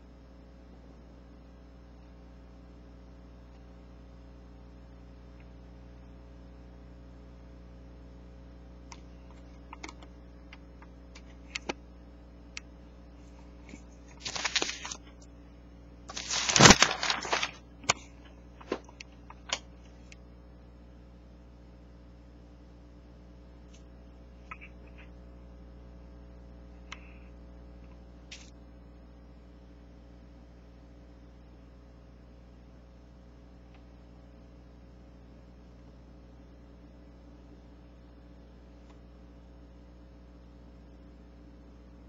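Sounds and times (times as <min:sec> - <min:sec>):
steady low hum: 0:00.0 - 0:42.0
paper rustling: 0:13.6 - 0:15.2, 0:16.1 - 0:19.6
newspaper pages crinkling: 0:13.7 - 0:15.3, 0:16.1 - 0:19.6.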